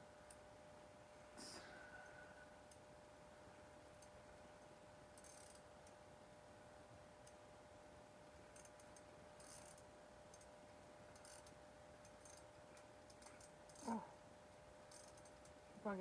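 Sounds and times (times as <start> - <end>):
faint steady hum: 0.0 - 16.0
fishing reel clicking: 5.2 - 5.6, 11.2 - 12.4, 14.9 - 15.5.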